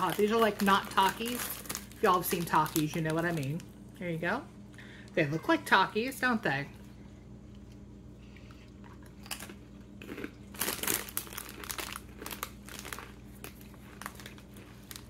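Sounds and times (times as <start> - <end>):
chip crunching and chewing: 0.0 - 3.7, 7.5 - 15.0
foil snack bag crinkling: 0.0 - 3.7, 9.2 - 15.0.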